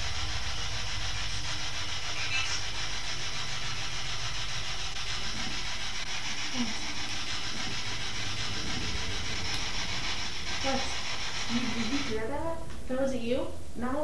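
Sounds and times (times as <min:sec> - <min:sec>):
radio static hiss: 0:05.1 - 0:12.4.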